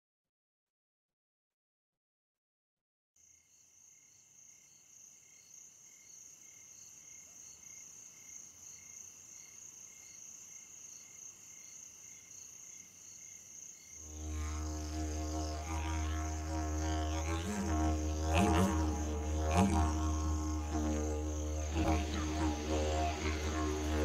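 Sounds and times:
insect chirping trill: 3.2 - 24.0
low didgeridoo drone: 14.1 - 24.0.

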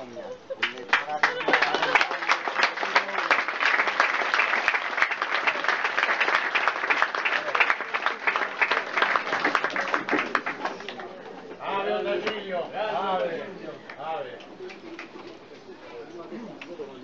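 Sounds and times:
audience applauding: 0.6 - 11.2.

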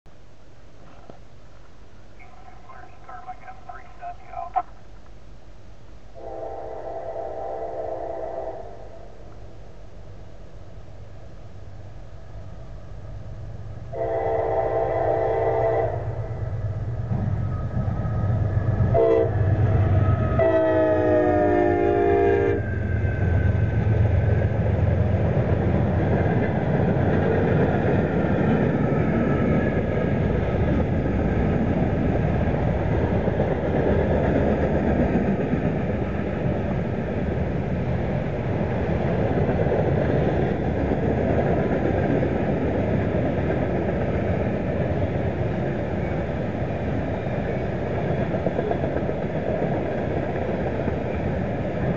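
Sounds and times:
locomotive engine drone: 1.4 - 5.7, 6.4 - 51.9
train horn blasts: 6.2 - 9.2, 13.9 - 16.4, 18.9 - 19.4, 20.4 - 22.7
train wheels rolling on rails: 16.4 - 51.9.

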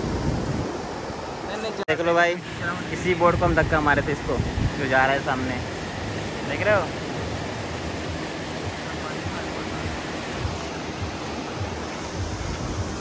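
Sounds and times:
small waves breaking on beach: 0.0 - 13.0.

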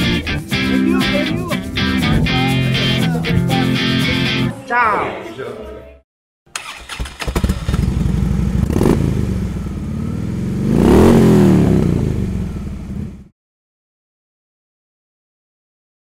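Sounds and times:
motorcycle engine revving: 6.6 - 13.3
motorcycle engine running: 7.3 - 13.3.

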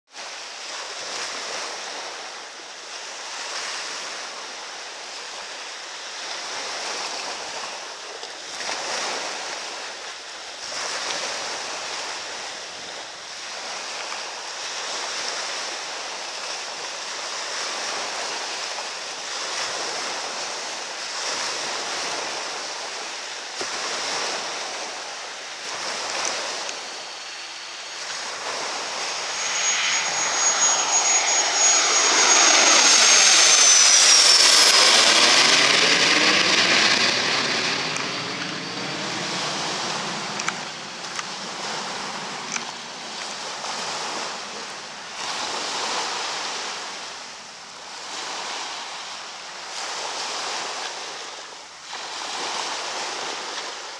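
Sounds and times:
jet engines roaring with whine: 23.6 - 45.8.

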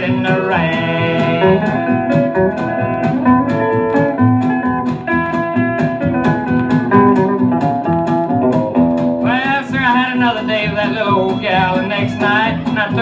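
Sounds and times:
guitar-led country band: 0.0 - 13.0.

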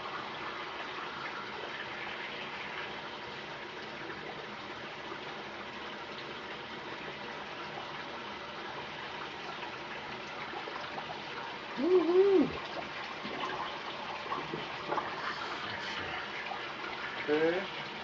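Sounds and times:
man humming: 11.8 - 12.6.

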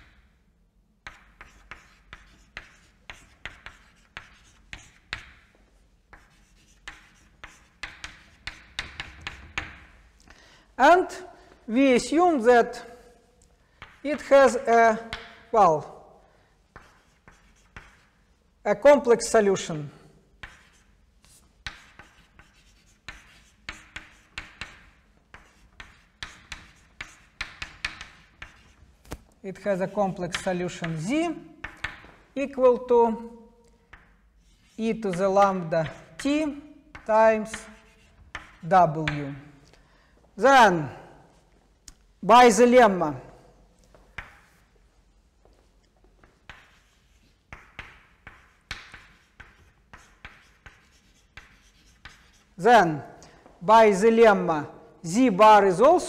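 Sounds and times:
chalk writing on chalkboard: 1.0 - 10.0, 13.8 - 15.5, 16.7 - 18.2, 20.3 - 32.3, 33.7 - 39.5, 44.0 - 44.7, 46.2 - 52.7.

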